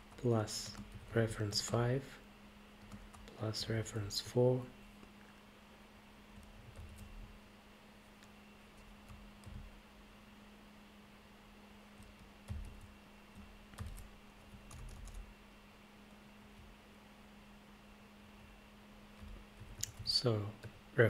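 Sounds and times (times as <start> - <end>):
computer keyboard typing: 0.0 - 1.8, 2.8 - 3.3, 6.3 - 7.2, 8.2 - 9.7, 12.0 - 15.3, 19.2 - 20.8
steady low hum: 0.0 - 21.0.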